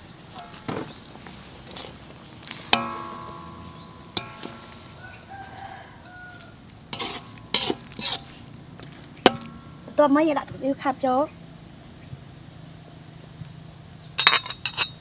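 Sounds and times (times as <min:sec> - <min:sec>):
ladle scraping across wok: 0:00.6 - 0:06.1, 0:06.8 - 0:10.0
metal ladle clanking on wok: 0:02.5 - 0:05.7, 0:06.9 - 0:10.0, 0:14.2 - 0:15.0.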